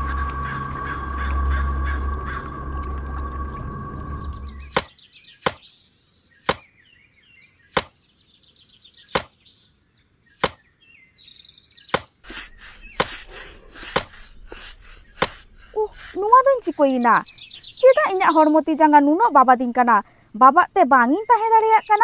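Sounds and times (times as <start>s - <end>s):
hum with low rumble: 0.0s - 4.8s, 12.3s - 17.8s
birds chirping: 0.0s - 22.0s
axe chopping wood: 6.5s - 6.7s, 7.7s - 8.0s, 11.9s - 12.1s.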